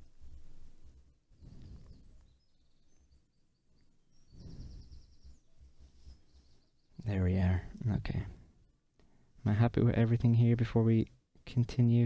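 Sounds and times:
faint high chirps: 1.4s - 7.1s.

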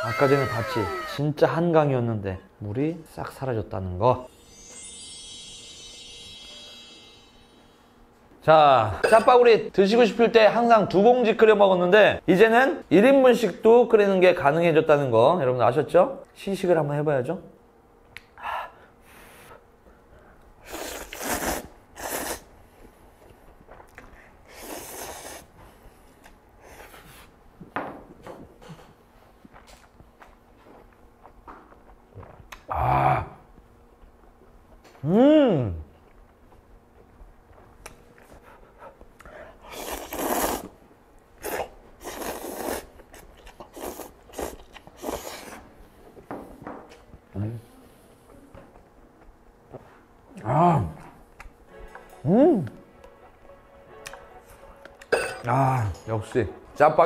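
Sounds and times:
man slurping noodles: 20.6s - 22.5s, 24.5s - 25.5s, 39.6s - 40.8s, 41.4s - 43.0s, 43.6s - 45.6s
chewing: 41.4s - 45.5s.

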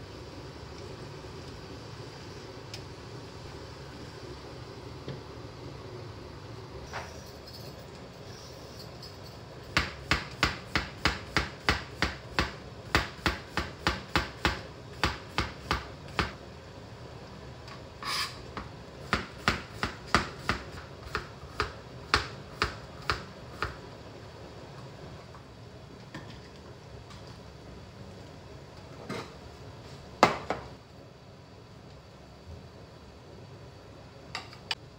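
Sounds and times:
knife scraping board: 18.0s - 18.4s
knife chopping on cutting board: 19.1s - 23.8s.

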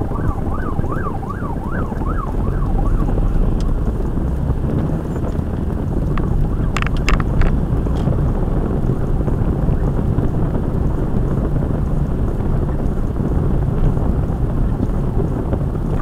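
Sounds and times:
car road and engine rumble: 0.0s - 16.0s.

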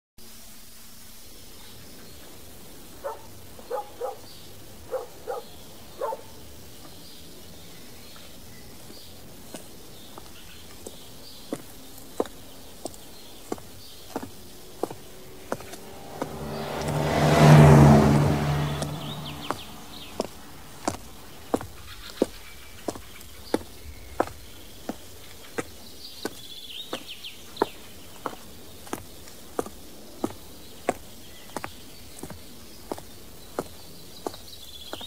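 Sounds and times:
low hiss: 0.2s - 4.8s
loud whoosh: 15.2s - 20.7s.

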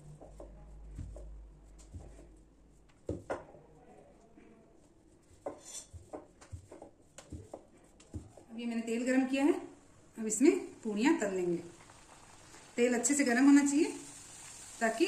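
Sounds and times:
rolling pin knocking on stone: 3.1s - 3.5s.

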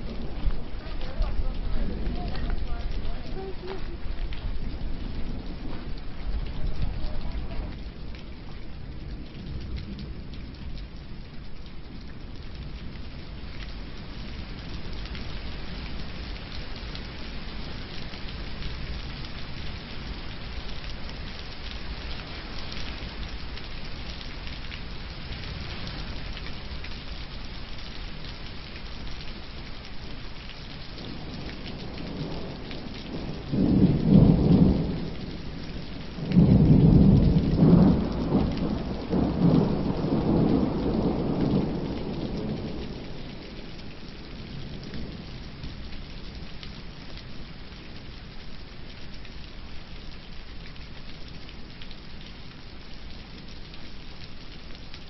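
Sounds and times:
thunder rumbling: 0.0s - 14.9s, 31.0s - 45.9s
rain hissing: 0.0s - 55.0s.

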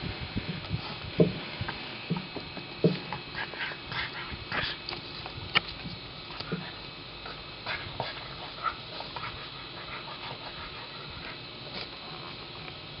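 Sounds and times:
steady hiss: 0.0s - 13.0s
dog breathing: 6.5s - 11.5s.

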